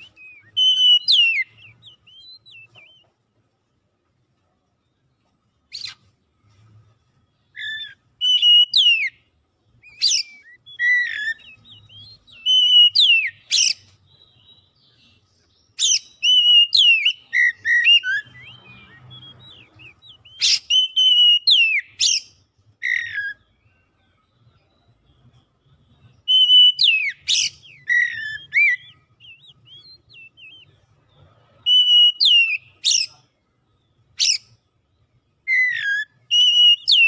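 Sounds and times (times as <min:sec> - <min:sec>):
bird singing whistled phrases: 0:00.0 - 0:03.1, 0:07.5 - 0:09.2, 0:09.8 - 0:15.0, 0:15.7 - 0:23.7, 0:26.1 - 0:30.8, 0:31.6 - 0:33.2, 0:34.2 - 0:34.6, 0:35.4 - 0:37.0.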